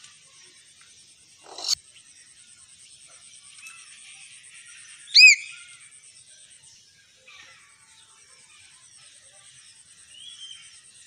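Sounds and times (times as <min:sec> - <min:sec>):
soft bird chirps: 0:01.4 - 0:01.8
myna whistled call: 0:05.1 - 0:05.6.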